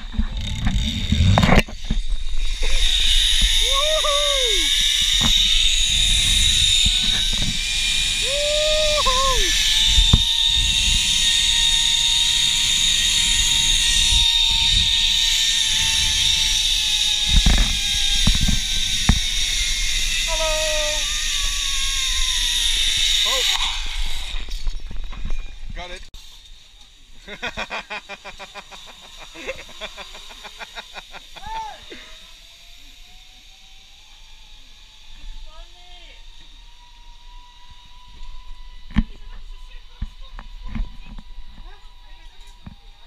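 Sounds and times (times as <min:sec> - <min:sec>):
wind rumble on microphone: 0:00.0 - 0:20.3
zipline pulleys whirring on cable: 0:00.0 - 0:43.0
person whooping: 0:03.6 - 0:04.7, 0:08.2 - 0:09.6, 0:20.3 - 0:21.1, 0:31.4 - 0:31.9.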